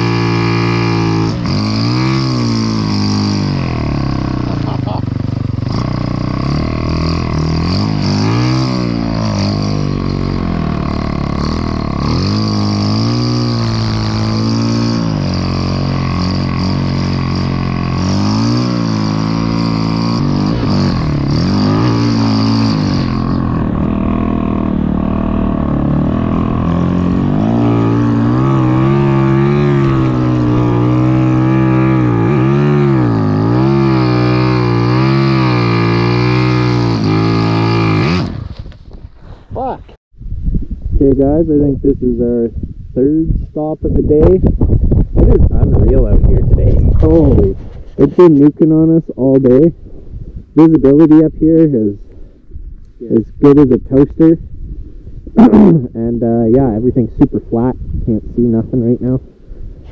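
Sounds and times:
snow bike engine revving: 0.0s - 38.7s, 55.4s - 55.8s.

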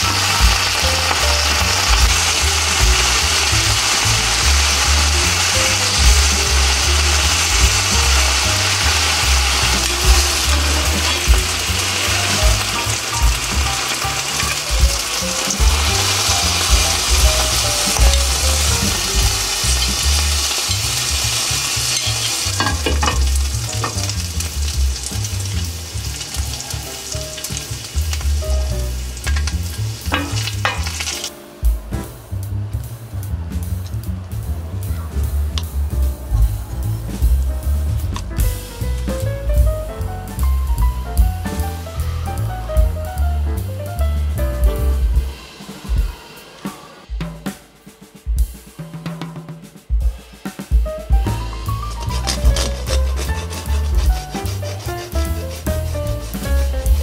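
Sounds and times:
food sizzling in a frying pan: 0.0s - 31.4s, 51.2s - 57.0s.

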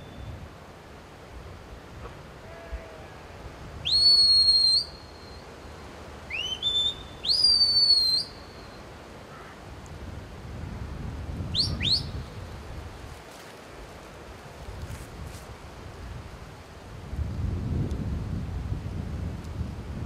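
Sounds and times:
shepherd's whistle: 3.8s - 5.1s, 6.3s - 8.4s, 11.6s - 12.2s.

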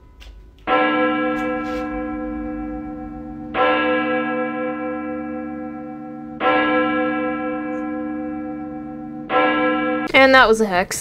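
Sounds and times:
deep bell tolling: 0.0s - 10.2s.

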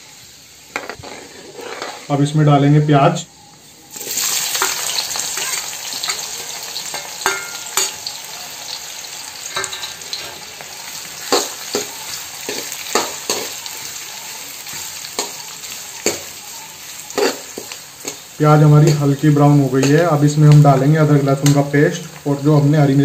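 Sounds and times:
onions sizzling in oil: 0.0s - 23.0s
metal ladle clinking on pan: 6.9s - 8.0s.

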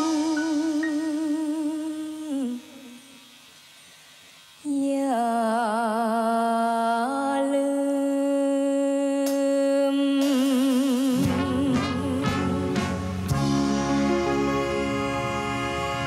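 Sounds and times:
woman singing with vibrato: 0.0s - 3.4s, 4.6s - 13.4s, 14.1s - 16.0s
backing band with bass and drums: 11.1s - 16.0s.

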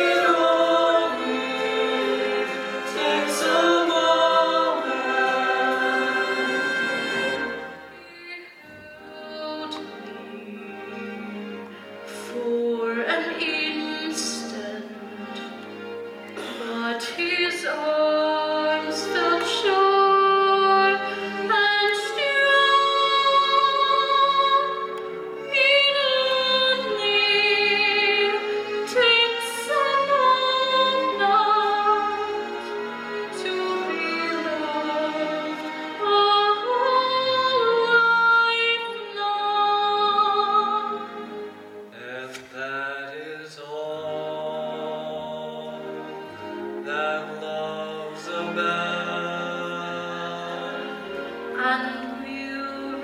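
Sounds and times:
group of voices singing: 0.0s - 8.0s
stage musical singing with vibrato: 0.0s - 53.0s.

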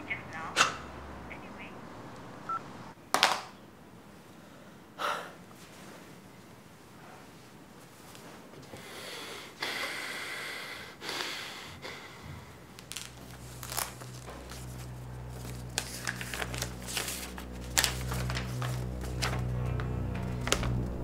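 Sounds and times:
heavy breaths: 8.6s - 12.9s
low film score drone: 12.2s - 21.0s
paper crackling and crinkling: 12.7s - 21.0s.

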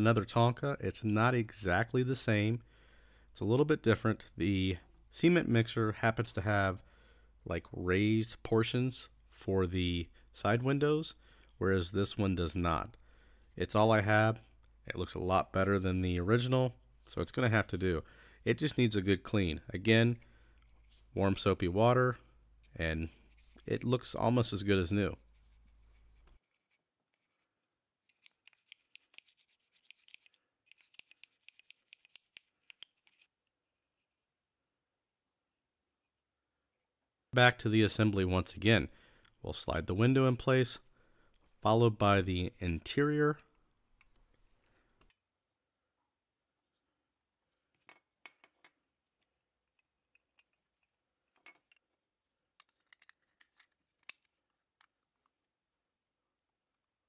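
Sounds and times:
toothbrush scrubbing plastic: 28.1s - 33.3s
toy parts clicking and scraping: 28.1s - 33.3s, 52.6s - 54.4s.

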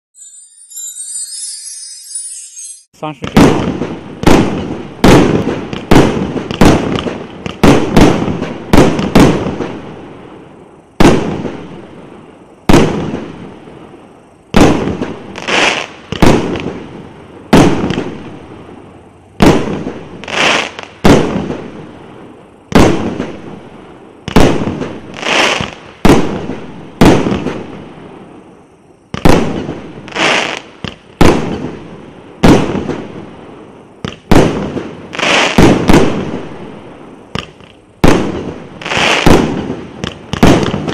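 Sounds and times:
fireworks cake bangs: 3.2s - 9.8s, 11.0s - 11.7s, 12.7s - 13.4s, 14.5s - 16.9s, 17.5s - 18.2s, 19.4s - 21.7s, 22.7s - 23.4s, 24.3s - 27.7s, 29.1s - 33.2s, 34.0s - 36.6s, 37.3s - 40.9s
shells bursting overhead: 19.4s - 21.7s, 37.3s - 40.9s.

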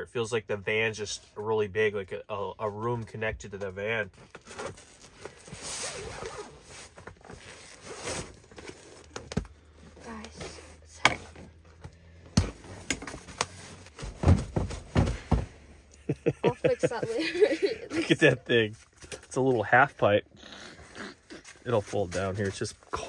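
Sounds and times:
knocks and thumps: 12.3s - 15.6s.

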